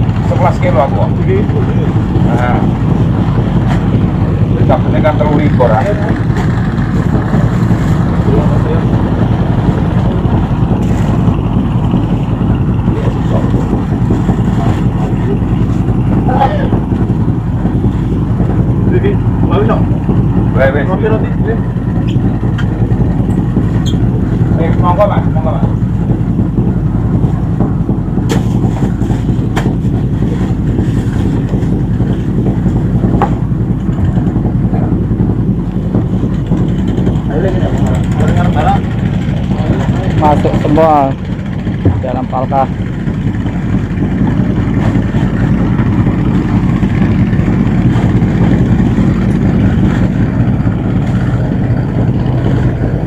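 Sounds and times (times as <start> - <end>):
boat engine running: 0.0 - 53.0
sharp knocks: 27.5 - 32.3.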